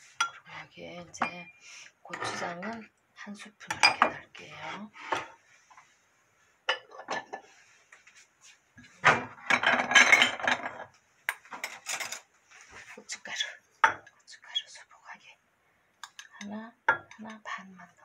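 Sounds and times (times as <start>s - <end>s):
dishes and utensils clattering: 6.7s - 7.6s, 8.8s - 12.3s.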